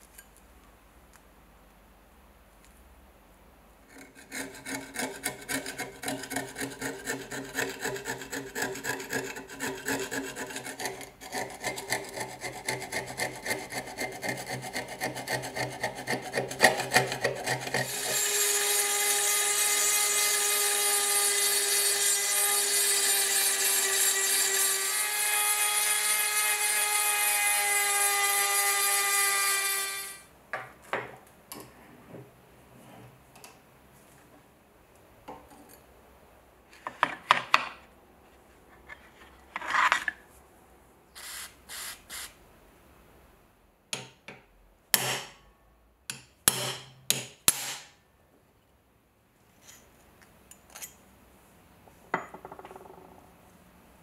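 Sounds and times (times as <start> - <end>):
rotary tool grinding whine: 17.4 - 30.2, 41.2 - 42.3.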